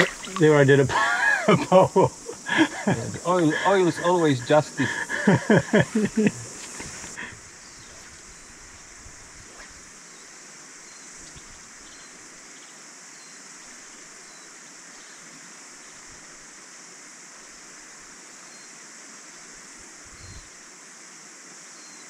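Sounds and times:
stream flowing over stones: 0.0 - 13.0
cicadas chorus: 0.0 - 22.0.

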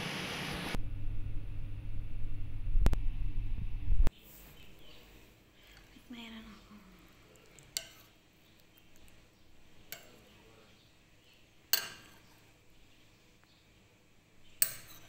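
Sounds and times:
utensil clinking against cookware: 7.5 - 8.2, 9.8 - 10.4, 11.7 - 12.3, 14.6 - 15.0.

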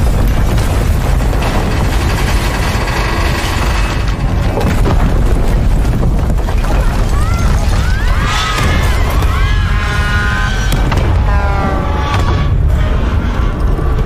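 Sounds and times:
buildings collapsing rumble: 0.0 - 14.0.

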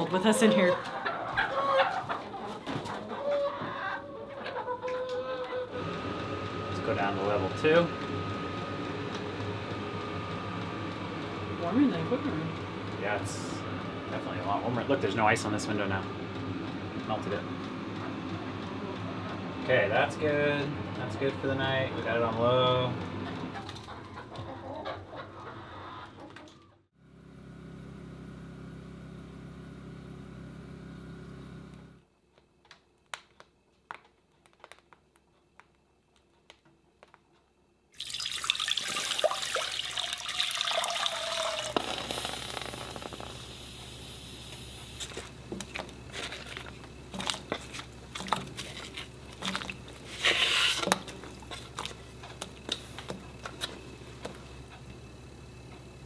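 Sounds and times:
low hum: 27.0 - 32.0
water pouring into a pot: 38.0 - 43.4.

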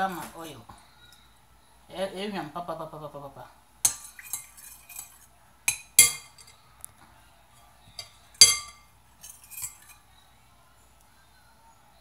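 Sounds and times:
metal utensil clinking on glass bowl: 3.8 - 6.6, 8.0 - 10.0.

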